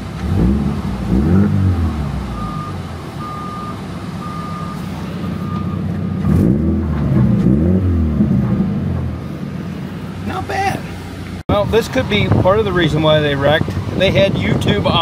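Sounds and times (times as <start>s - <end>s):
car engine revving and idling: 0.0s - 15.0s
short electronic beeps: 2.4s - 6.4s.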